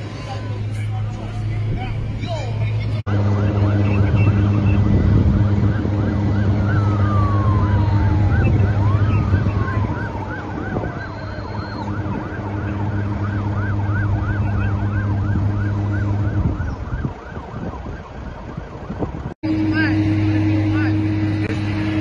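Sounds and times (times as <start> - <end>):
fire truck engine drone: 0.0 - 22.0
emergency siren wailing: 2.9 - 22.0.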